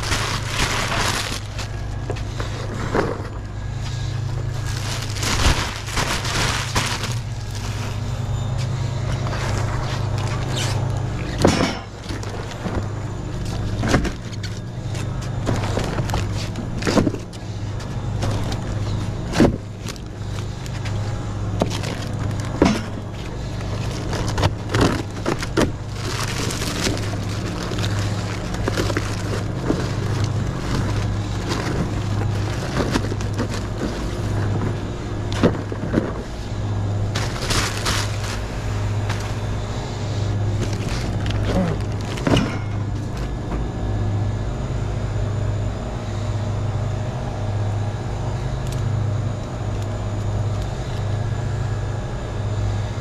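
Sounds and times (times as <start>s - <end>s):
plastic wrap crinkling: 0.0s - 11.4s, 18.2s - 36.4s, 37.0s - 39.8s, 40.5s - 43.3s
steady low hum: 0.0s - 53.0s.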